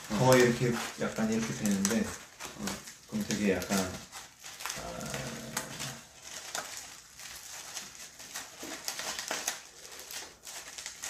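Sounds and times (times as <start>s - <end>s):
paper rustling and crinkling: 0.0s - 11.0s
low voice humming: 4.8s - 6.1s.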